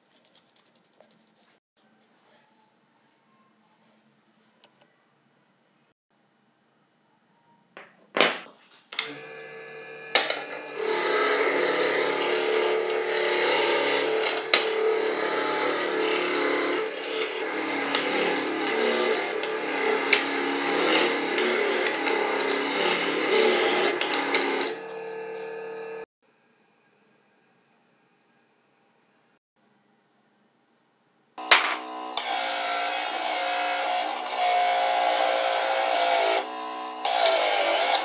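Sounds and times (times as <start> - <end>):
bench grinder motor hum: 9.0 - 26.1, 31.4 - 38.0.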